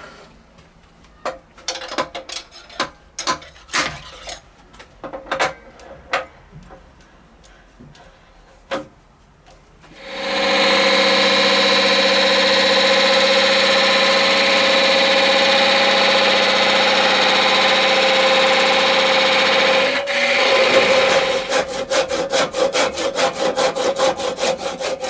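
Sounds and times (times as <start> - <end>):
tools clicking and knocking: 1.3 - 6.9.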